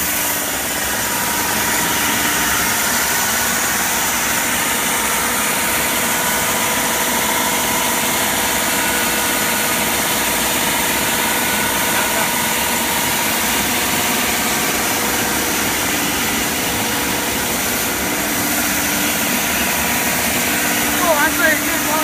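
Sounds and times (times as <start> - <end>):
band saw running: 0.0 - 22.0.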